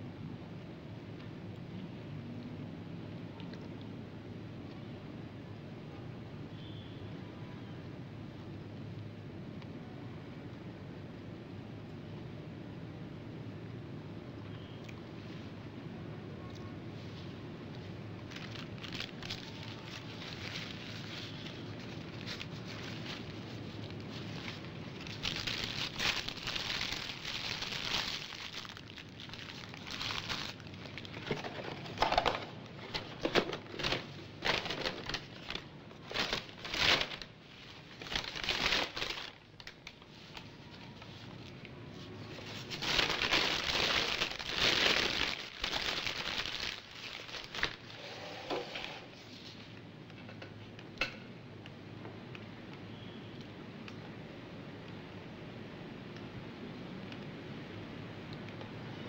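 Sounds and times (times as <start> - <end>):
paper crumpling and rustling: 17.8 - 49.7.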